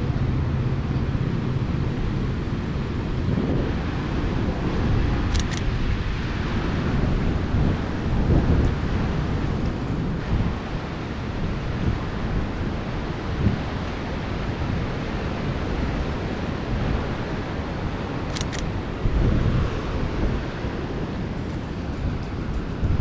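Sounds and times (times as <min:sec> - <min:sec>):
heavy surf rumbling: 0:00.0 - 0:23.0
wind buffeting microphone: 0:00.0 - 0:23.0
sharp clicks: 0:05.3 - 0:05.7, 0:18.3 - 0:18.7.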